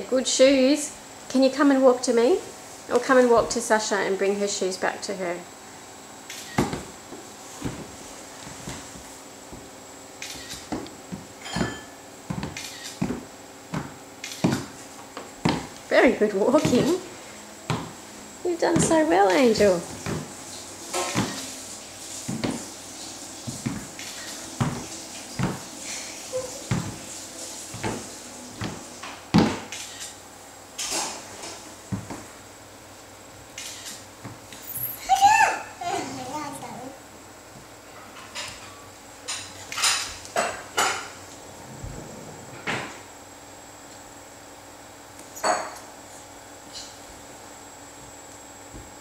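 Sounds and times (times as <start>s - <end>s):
toddler footsteps on hardwood floor: 6.6s - 9.7s, 10.7s - 15.8s, 16.4s - 17.1s, 17.7s - 18.0s, 18.6s - 20.3s, 21.0s - 21.5s, 22.2s - 22.7s, 23.4s - 25.7s, 26.3s - 27.1s, 27.7s - 29.6s, 31.9s - 32.3s.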